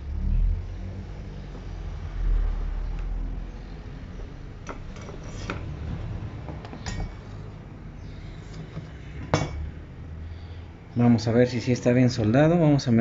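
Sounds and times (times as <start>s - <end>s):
low steady rumble: 0.0s - 13.0s
metal plate taps and clinks: 6.8s - 7.2s.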